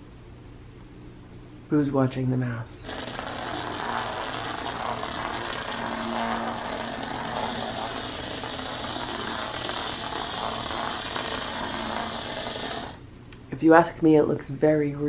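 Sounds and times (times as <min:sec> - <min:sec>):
small electric motor whirring: 0:02.8 - 0:13.0.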